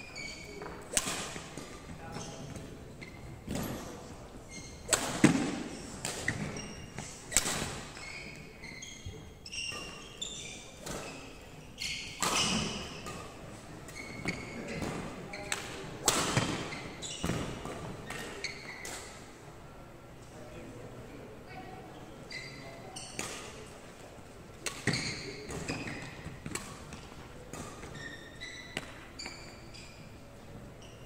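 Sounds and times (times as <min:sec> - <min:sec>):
shoes squeaking on wooden floor: 0:00.0 - 0:07.2, 0:07.8 - 0:13.1, 0:13.9 - 0:15.5, 0:16.5 - 0:18.9, 0:24.8 - 0:27.0, 0:27.6 - 0:30.2
rackets striking shuttlecock: 0:00.6 - 0:01.8, 0:04.8 - 0:06.5, 0:07.3 - 0:08.0, 0:24.6 - 0:27.9.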